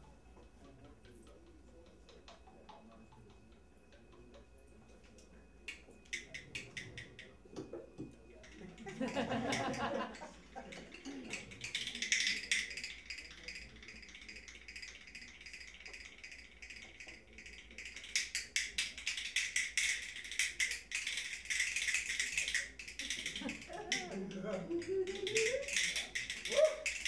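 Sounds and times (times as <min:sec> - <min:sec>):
hand-held rattle shaken: 0:10.6 - 0:27.0.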